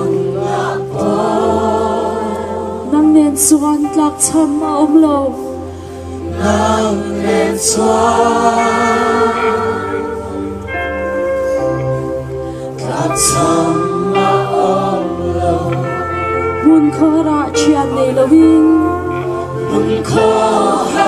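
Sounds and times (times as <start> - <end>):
group singing a worship song: 0.0 - 3.0, 6.2 - 10.7, 12.6 - 16.6, 19.2 - 21.0
woman singing into a microphone: 0.0 - 5.5, 15.8 - 21.0.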